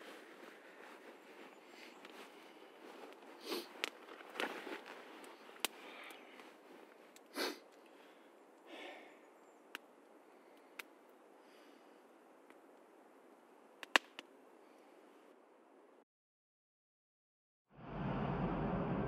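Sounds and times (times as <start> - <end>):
campfire crackling: 0.0 - 16.0
fire pops: 2.9 - 7.9, 13.8 - 14.3.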